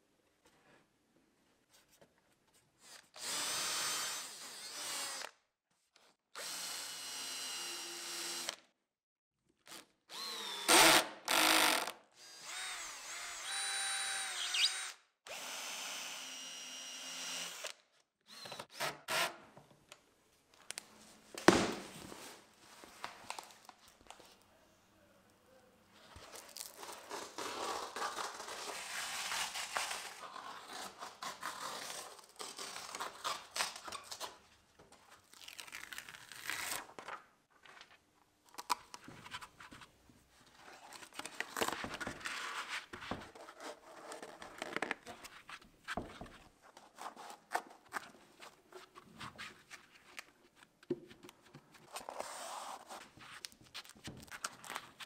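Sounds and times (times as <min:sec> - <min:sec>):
cordless drill whining: 0:03.2 - 0:05.4, 0:06.4 - 0:08.6, 0:10.1 - 0:19.3.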